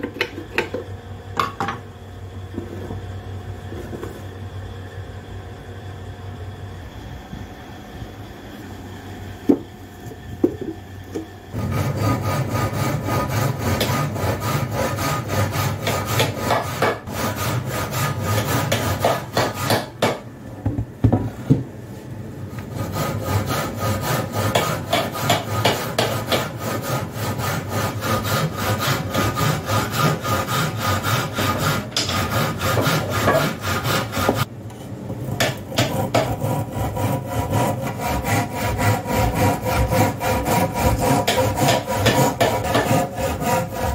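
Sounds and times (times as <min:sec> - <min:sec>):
hand saw cutting wood: 0:11.5 - 0:20.2, 0:22.6 - 0:34.5, 0:35.4 - 0:43.9.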